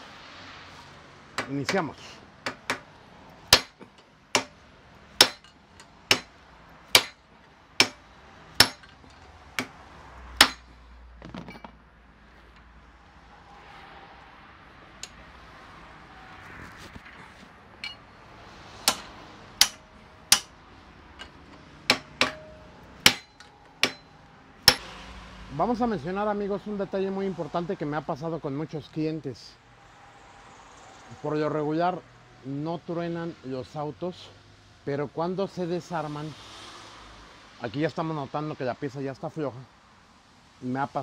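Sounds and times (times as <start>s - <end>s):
hammer striking steel chisel: 1.4s - 2.9s, 3.5s - 4.6s, 5.2s - 7.2s, 7.8s - 9.8s, 10.4s - 10.7s, 17.8s - 18.1s, 18.8s - 20.6s, 21.2s - 24.9s.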